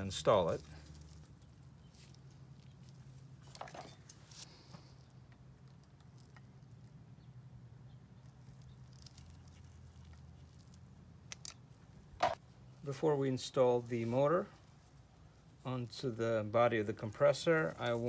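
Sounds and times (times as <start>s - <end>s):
small metal parts clicking and scraping: 8.4s - 11.6s.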